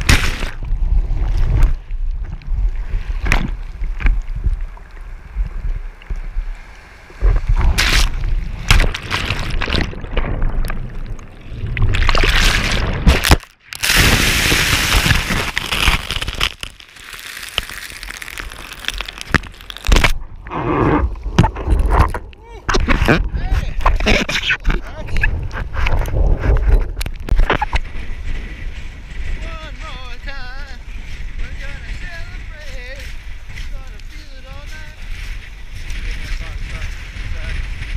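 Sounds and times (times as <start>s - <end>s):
seawater sloshing and splashing: 0.0s - 22.2s
water buffeting microphone: 0.0s - 37.9s.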